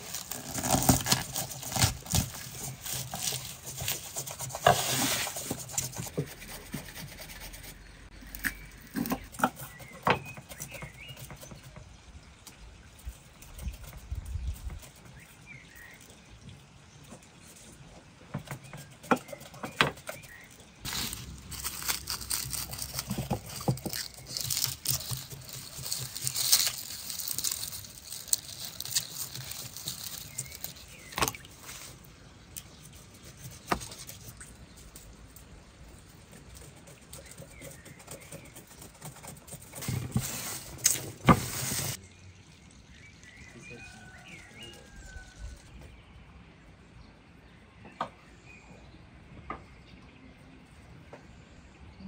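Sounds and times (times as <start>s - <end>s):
papery garlic skins rustling: 0.0s - 6.4s, 19.8s - 36.4s, 38.1s - 42.0s.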